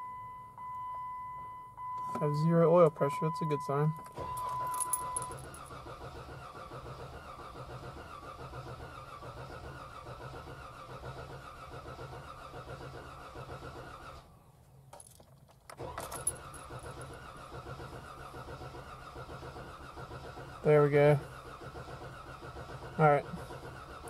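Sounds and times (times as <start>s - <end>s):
engine starter cranking: 4.0s - 14.3s, 15.5s - 24.0s.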